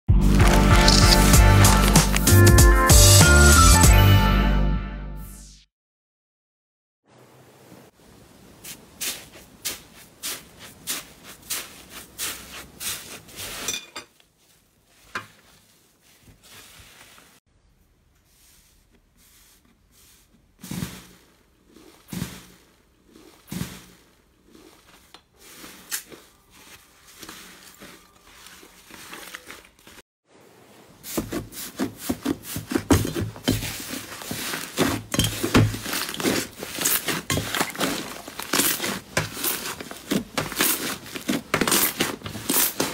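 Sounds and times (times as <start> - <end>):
hands kneading slime: 8.7 - 17.4, 18.2 - 30.0, 31.0 - 42.9.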